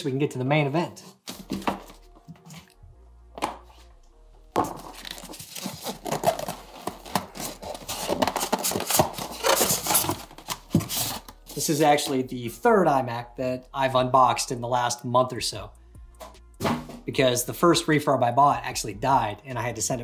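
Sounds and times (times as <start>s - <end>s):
background music: 0.0s - 20.0s
cardboard and foam packaging rustling: 1.1s - 2.8s, 4.5s - 11.8s.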